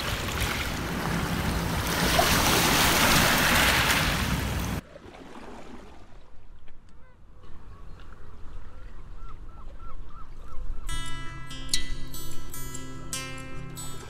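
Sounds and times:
river water rushing: 0.0 - 6.0
wind: 0.0 - 14.0.

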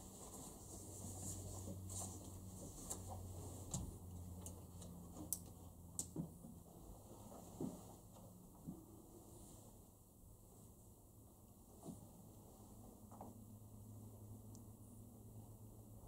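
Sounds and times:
low steady hum: 0.0 - 16.0
faint clicks and taps: 2.6 - 6.6.

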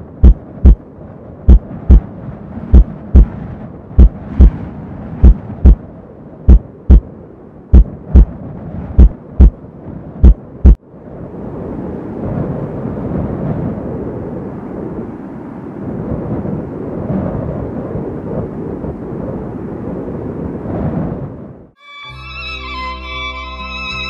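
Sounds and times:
low rumble: 0.0 - 21.8
heartbeat double thumps: 0.2 - 0.8, 1.5 - 2.1, 2.7 - 3.4, 4.0 - 4.6, 5.2 - 5.8, 6.5 - 7.1, 7.7 - 8.4, 9.0 - 9.6, 10.2 - 10.8.

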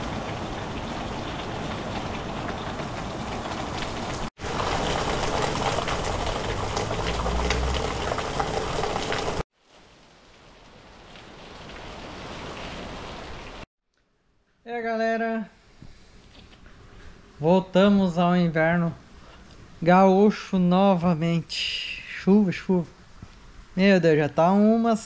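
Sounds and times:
rain falling: 0.0 - 13.7.

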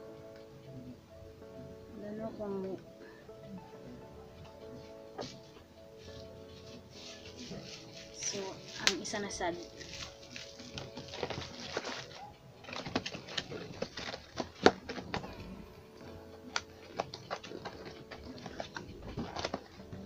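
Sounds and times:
plastic packaging crinkling: 6.0 - 20.0.

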